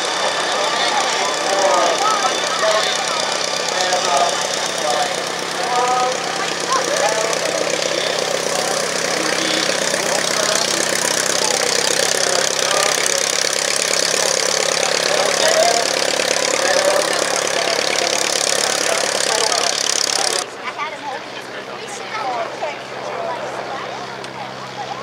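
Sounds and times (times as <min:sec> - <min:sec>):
propeller plane engine running: 0:00.0 - 0:20.6.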